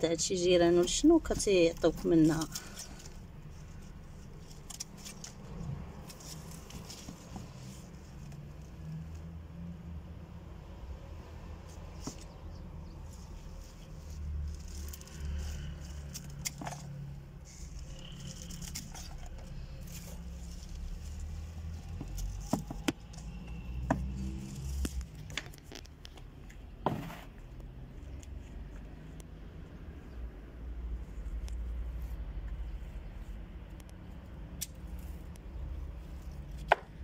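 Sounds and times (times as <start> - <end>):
small things clicking and scraping: 0.8 - 9.4, 11.6 - 29.7.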